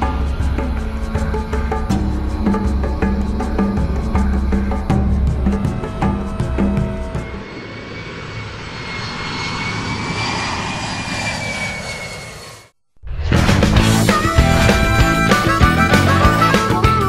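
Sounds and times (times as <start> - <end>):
music track: 0.0 - 7.7, 13.1 - 17.0
airplane flyby rushing whine: 0.0 - 17.0.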